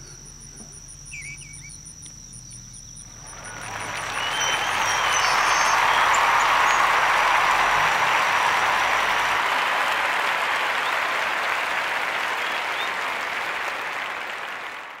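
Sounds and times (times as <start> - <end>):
crowd applause: 3.1 - 15.0.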